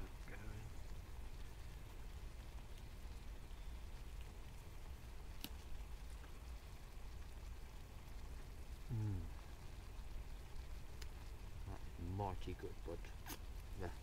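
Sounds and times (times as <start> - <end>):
faint outdoor hiss: 0.0 - 14.0
light ticks: 10.9 - 11.3.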